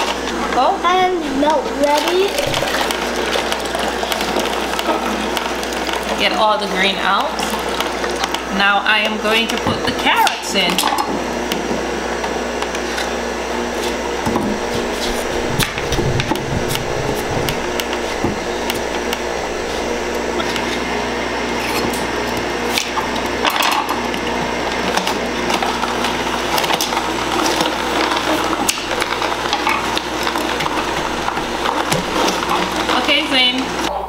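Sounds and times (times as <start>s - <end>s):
juicer motor running: 0.0s - 34.0s.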